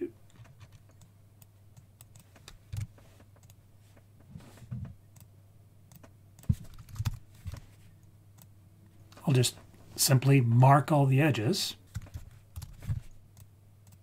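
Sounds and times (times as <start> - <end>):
keyboard and mouse clicks: 0.3 - 5.3, 5.9 - 7.6, 11.9 - 14.0.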